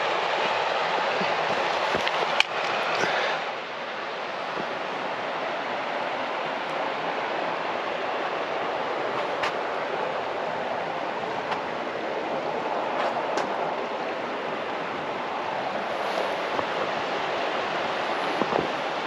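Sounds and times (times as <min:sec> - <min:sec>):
steady rushing outdoor noise: 0:00.0 - 0:19.0.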